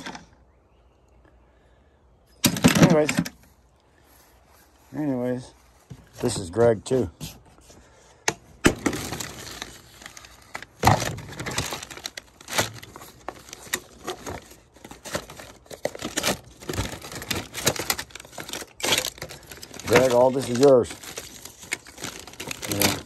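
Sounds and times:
plastic bags crinkling: 8.7s - 23.0s.

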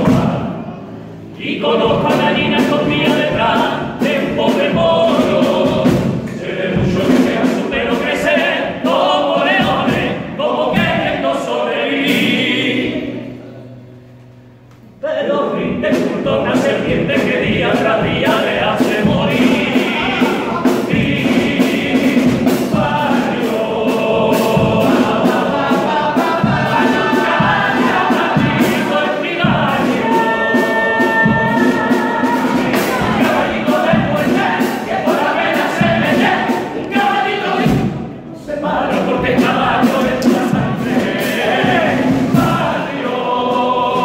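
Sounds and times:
steady drum beat: 0.0s - 0.7s, 1.5s - 13.1s, 15.7s - 44.0s
men singing in chorus: 15.1s - 37.8s, 38.5s - 44.0s.

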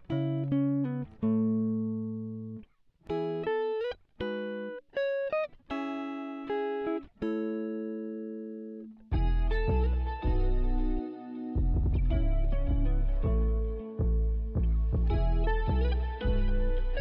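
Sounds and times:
plucked guitar playing: 0.0s - 17.0s.

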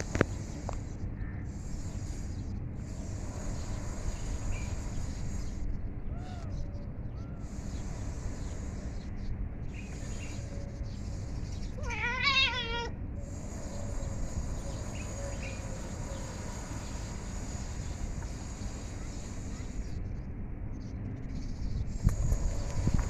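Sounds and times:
cat meowing: 11.8s - 12.9s.

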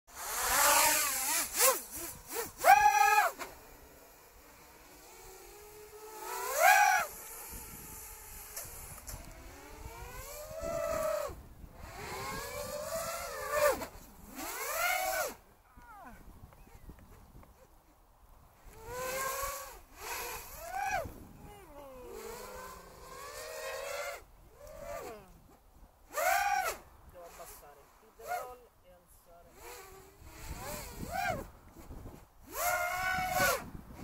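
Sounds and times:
model aircraft motor and propeller: 0.1s - 34.0s
wind rush over microphone: 7.4s - 15.1s, 18.5s - 22.8s, 29.6s - 34.0s.

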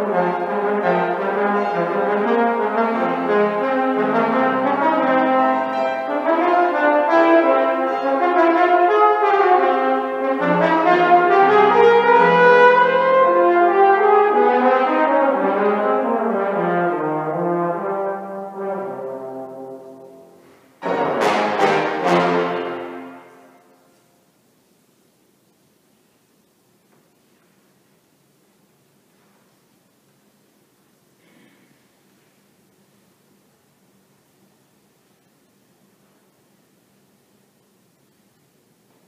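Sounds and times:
piano accompaniment: 0.0s - 23.9s
trombone melody: 0.0s - 24.0s.

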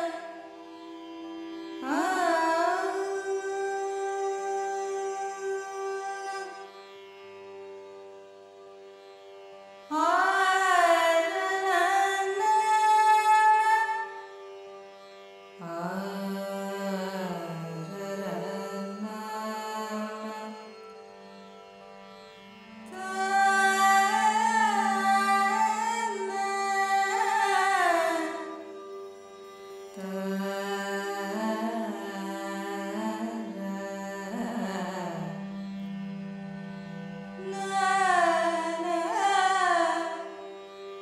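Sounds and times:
ornamented vocal melody: 0.0s - 0.6s, 1.8s - 6.7s, 9.9s - 14.2s, 15.6s - 20.6s, 22.8s - 28.9s, 29.9s - 35.6s, 37.0s - 40.5s.

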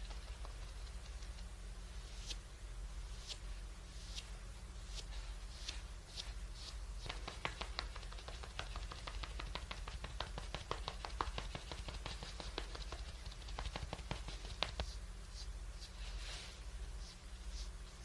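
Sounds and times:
makeup sponge tapping skin: 0.0s - 1.5s, 7.0s - 15.0s.

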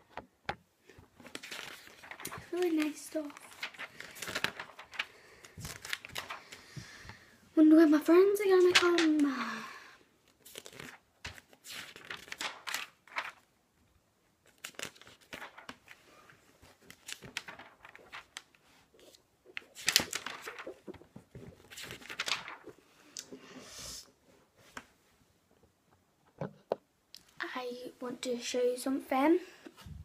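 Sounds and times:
packaging rustling and crackling: 1.2s - 6.6s, 16.6s - 22.8s.

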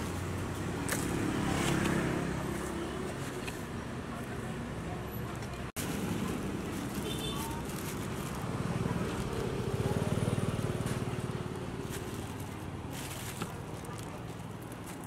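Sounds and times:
plastic bag crackling: 5.8s - 15.0s.

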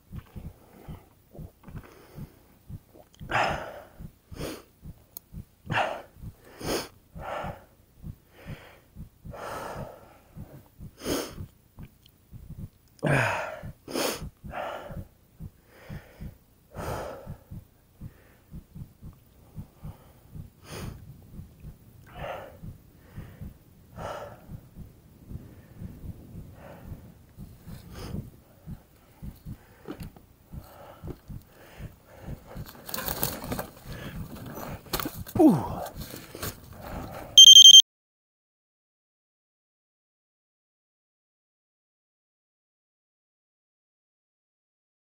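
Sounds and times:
short low thumps: 0.1s - 3.0s, 3.9s - 4.2s, 8.0s - 12.7s, 13.6s - 16.4s, 17.2s - 21.9s, 24.4s - 29.6s
person breathing hard: 0.4s - 4.7s, 5.7s - 11.5s, 13.0s - 18.8s, 19.4s - 21.0s, 21.6s - 37.4s.

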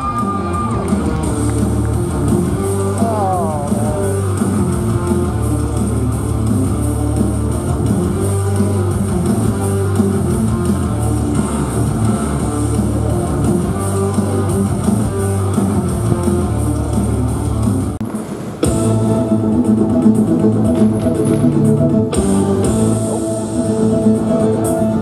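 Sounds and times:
rock music with guitar and bass: 0.0s - 18.0s, 18.6s - 25.0s.

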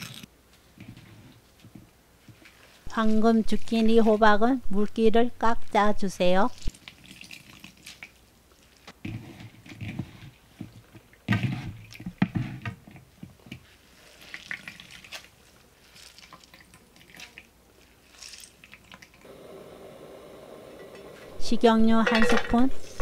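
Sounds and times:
wet squelching by hand: 13.9s - 19.2s.

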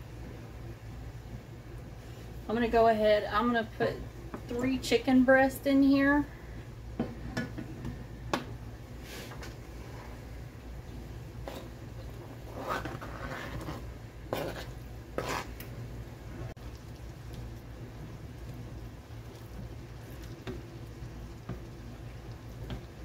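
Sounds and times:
spatula stirring sauce: 11.4s - 15.7s, 16.6s - 23.0s.

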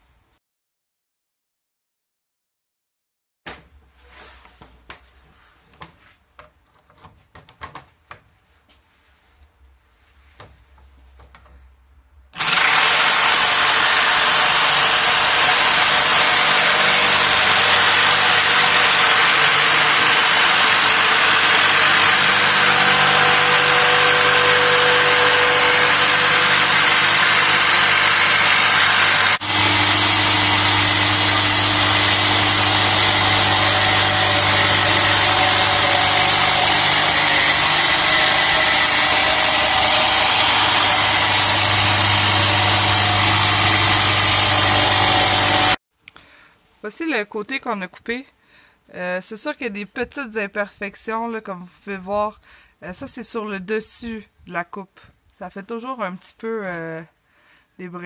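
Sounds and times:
jigsaw cutting wood: 12.4s - 45.8s.

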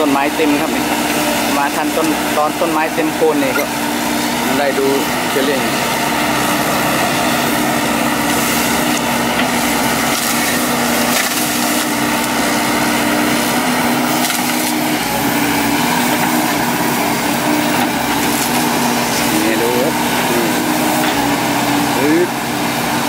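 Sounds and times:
excavator diesel engine: 0.0s - 23.0s
hydraulic whine: 0.0s - 23.0s
wood and brush crushing: 7.8s - 21.2s.

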